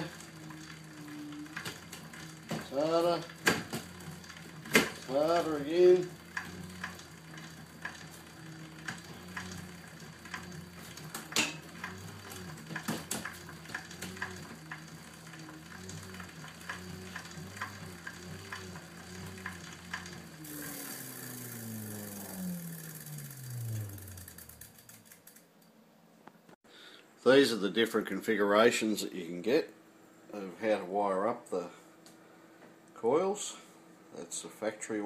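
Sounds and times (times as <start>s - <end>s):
bike chain ticking: 0.0s - 25.7s
pedal generator humming: 0.0s - 26.6s.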